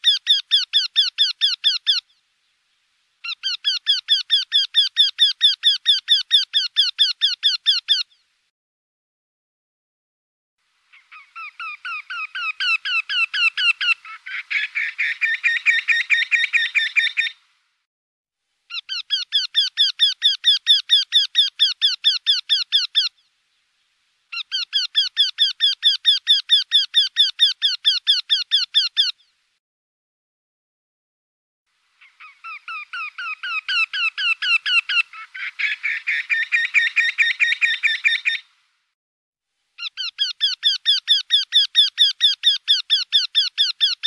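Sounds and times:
bird repeated calls: 0.0 - 2.2, 3.2 - 8.3, 10.9 - 17.4, 18.7 - 23.3, 24.3 - 29.4, 32.0 - 38.5, 39.8 - 44.0.

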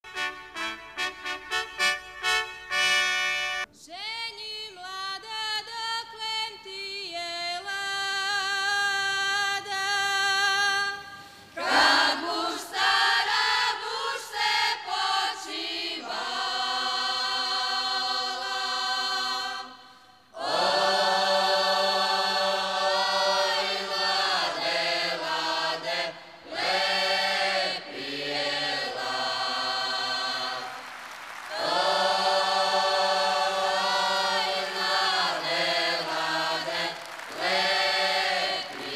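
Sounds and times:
women's group singing unaccompanied: 11.6 - 38.9.

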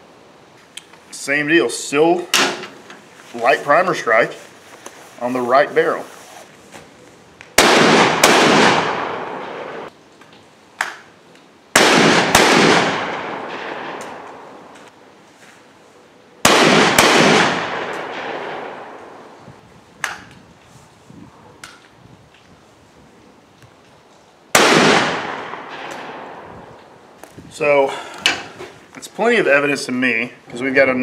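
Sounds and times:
shotgun firing: 7.6 - 9.9, 11.8 - 14.3, 16.4 - 19.1, 24.6 - 26.4.

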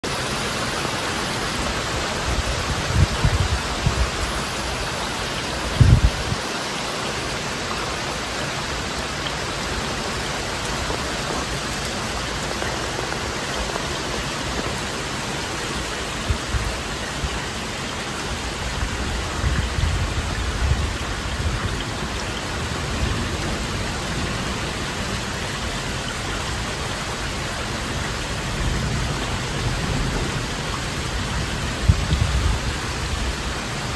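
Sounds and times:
heavy rain falling: 0.0 - 33.9
low thunder rumbles: 1.6 - 6.5, 28.2 - 33.8.

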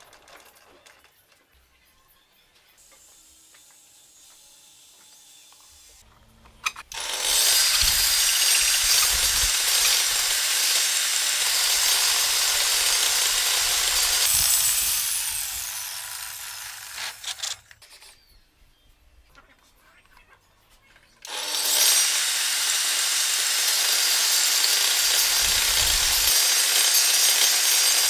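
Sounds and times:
table saw cutting wood: 2.8 - 6.0, 6.8 - 17.6, 21.2 - 28.0.

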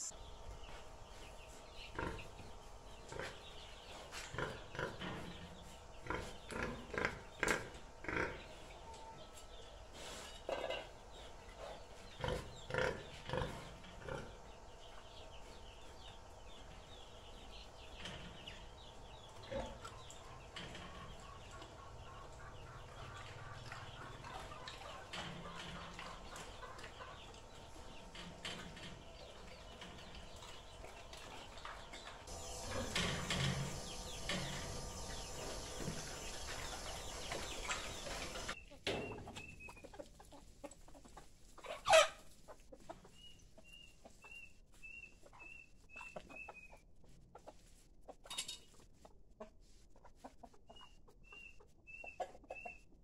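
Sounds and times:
hens clucking faintly: 0.0 - 53.0
pig grunting: 1.9 - 2.4, 3.1 - 8.6, 12.0 - 14.5.

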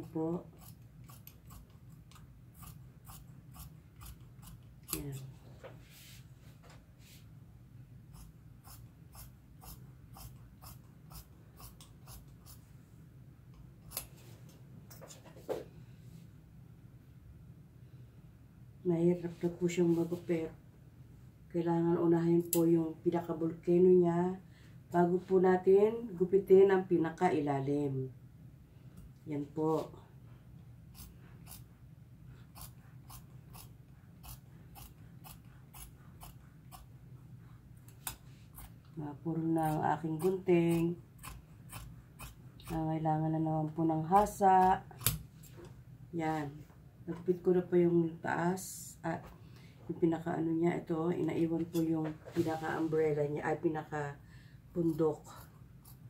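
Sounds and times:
shears snipping fabric: 0.0 - 5.3, 8.2 - 12.6, 13.9 - 14.2, 30.9 - 31.7, 32.4 - 36.9, 39.4 - 43.0, 44.1 - 45.5
person talking: 4.9 - 5.4, 29.2 - 30.0, 49.9 - 54.2.

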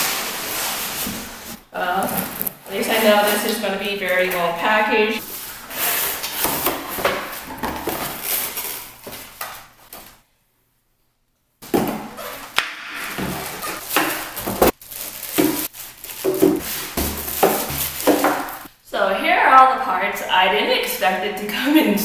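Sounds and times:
plastic rustling: 0.0 - 10.2, 12.2 - 18.7.

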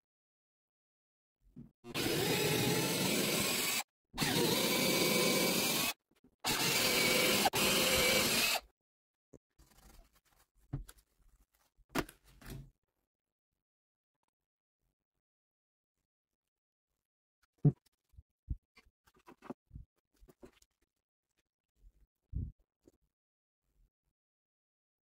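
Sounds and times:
power tool running: 1.9 - 8.6.

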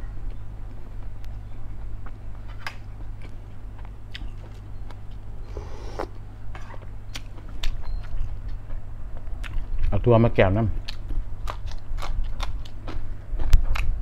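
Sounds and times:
wet chewing: 1.8 - 6.2, 7.1 - 10.0, 10.8 - 14.0
slurp from a spoon: 5.5 - 6.2.

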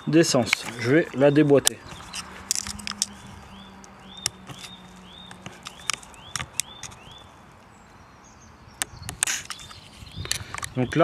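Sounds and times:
bird chirping: 0.0 - 11.0
small sharp clicks and knocks: 0.5 - 7.2, 8.8 - 10.8.

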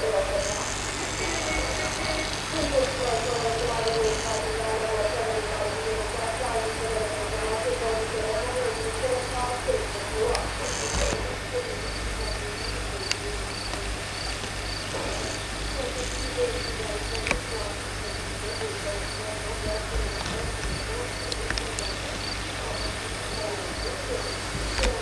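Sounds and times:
cricket chirping: 0.1 - 4.5.

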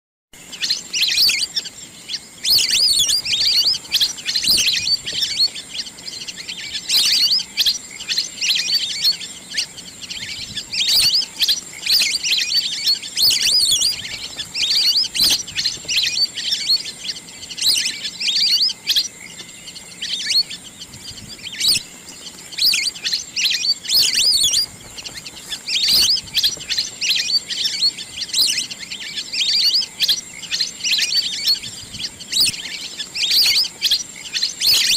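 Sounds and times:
ducks whistling calls: 0.4 - 34.9.

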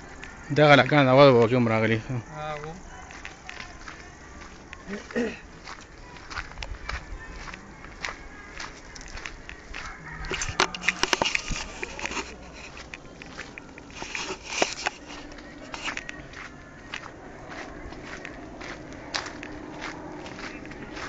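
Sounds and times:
footsteps on gritty pavement: 0.0 - 21.0
crackles and scrapes: 8.6 - 16.2.

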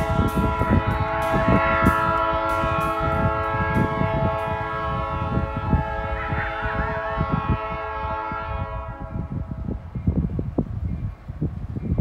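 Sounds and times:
low thumps: 0.0 - 6.9
locomotive air horn chord: 0.0 - 9.7.

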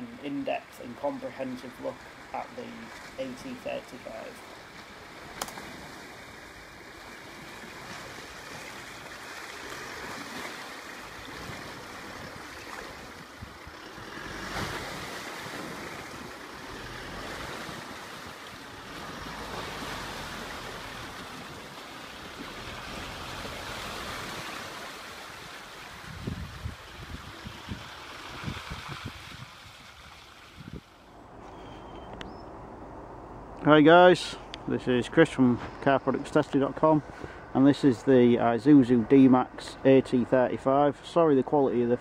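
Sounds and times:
water sloshing around tyres: 0.9 - 32.1
wind buffeting microphone: 5.1 - 16.4, 25.3 - 31.4.

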